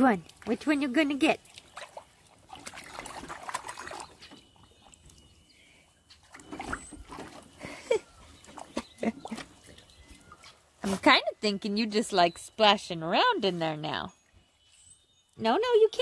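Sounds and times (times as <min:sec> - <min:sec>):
water splashing in a pool: 0:00.0 - 0:05.4.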